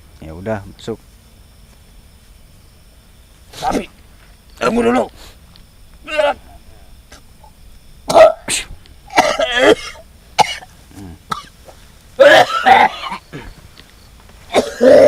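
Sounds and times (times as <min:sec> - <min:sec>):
person coughing and clearing throat: 0:08.1 - 0:10.7, 0:11.3 - 0:11.6, 0:12.2 - 0:13.6, 0:14.5 - 0:15.0.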